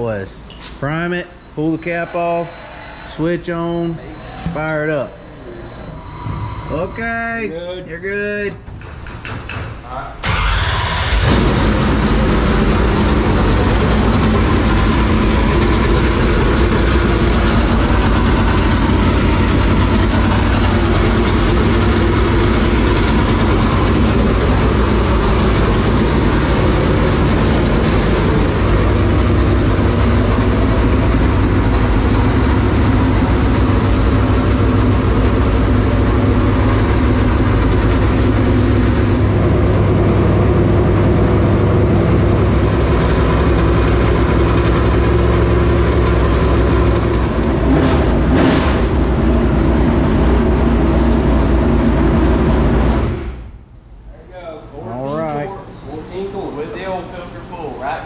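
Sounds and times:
racing engine idling loudly: 0:10.2 - 0:53.2.

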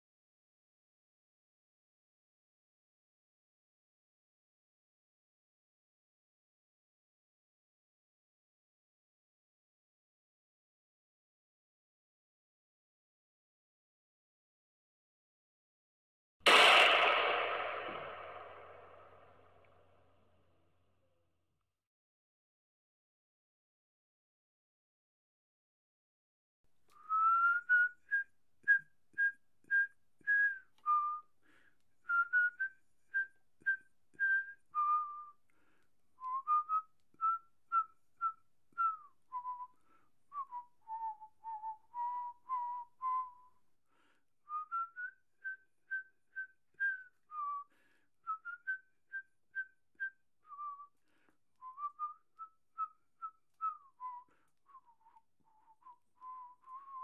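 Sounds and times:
person whistling a slow tune: 0:26.9 - 0:57.0.

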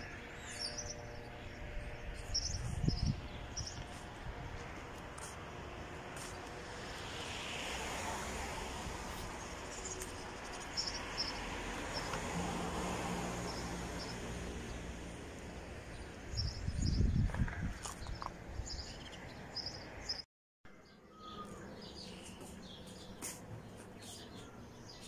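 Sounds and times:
distant road traffic: 0:00.0 - 0:25.0
small birds chirping: 0:15.9 - 0:20.2, 0:20.8 - 0:25.0.

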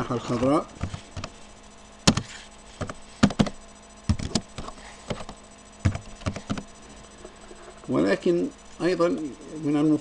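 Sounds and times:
keyboard typing clicks: 0:02.8 - 0:06.7.

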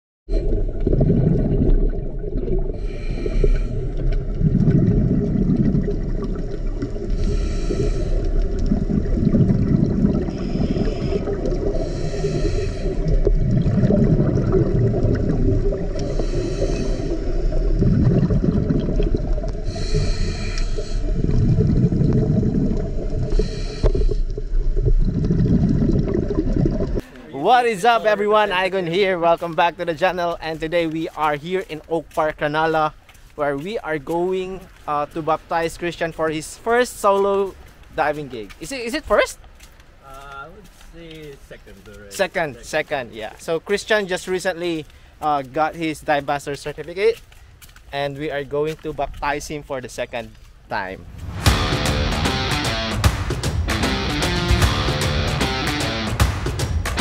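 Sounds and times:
exhaled bubbles rushing: 0:00.3 - 0:27.0
low underwater rumble: 0:00.3 - 0:27.0
regulator hissing inhale: 0:02.8 - 0:04.0, 0:07.1 - 0:08.6, 0:10.3 - 0:13.2, 0:15.9 - 0:17.8, 0:19.6 - 0:21.3, 0:23.2 - 0:24.4.

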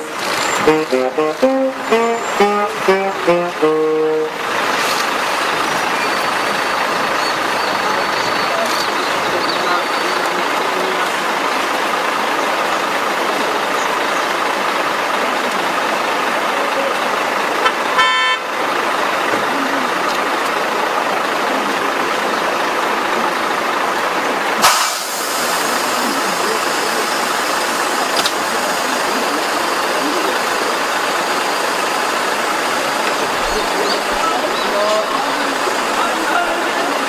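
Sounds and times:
car horn toot: 0:00.0 - 0:04.5, 0:17.6 - 0:18.6.

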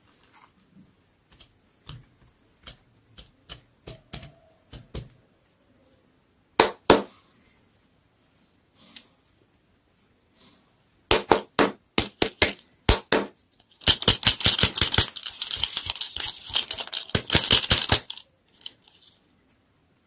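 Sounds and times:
plastic wrapper crackling: 0:13.6 - 0:19.2.

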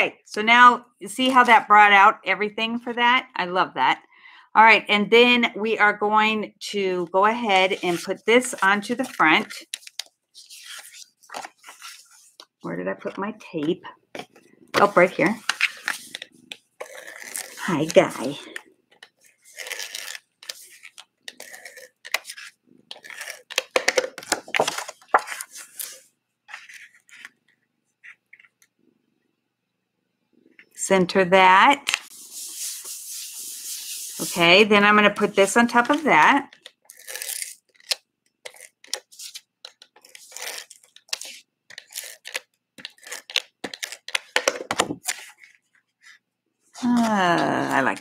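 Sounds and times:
paper rustling: 0:07.6 - 0:13.2, 0:14.2 - 0:28.6, 0:35.6 - 0:46.2.

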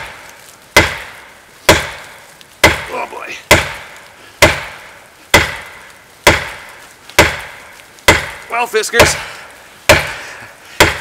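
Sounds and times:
axe handle whacking tree trunk: 0:00.8 - 0:06.6, 0:09.9 - 0:10.1, 0:10.8 - 0:11.0.

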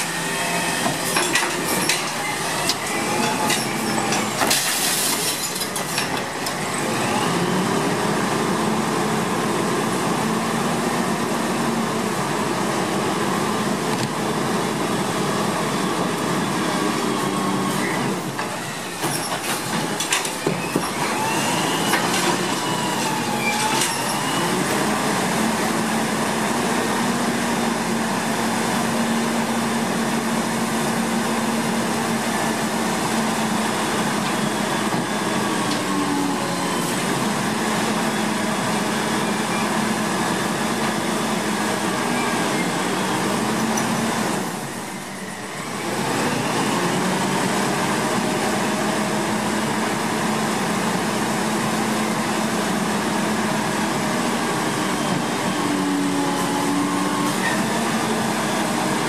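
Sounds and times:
hydraulic arm whine: 0:15.6 - 0:25.0.

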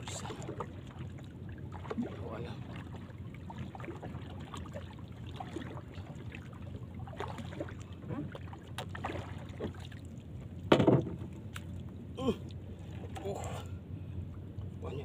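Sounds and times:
water lapping around boat: 0:00.0 - 0:15.0
paddle knocking against boat: 0:10.6 - 0:11.4.

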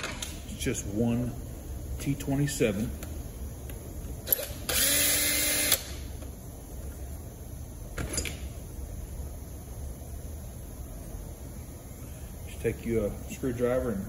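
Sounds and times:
cordless drill spinning: 0:04.3 - 0:05.9.

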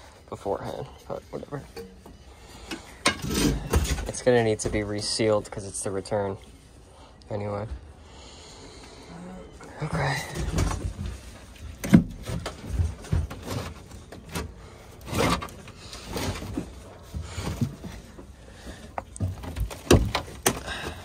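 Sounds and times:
wood knocking and scraping: 0:10.0 - 0:21.0.

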